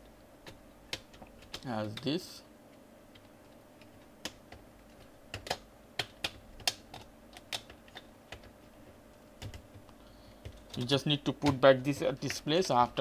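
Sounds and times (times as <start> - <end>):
plastic keyboard clicks: 0.4 - 2.1, 3.8 - 8.5, 9.4 - 12.8.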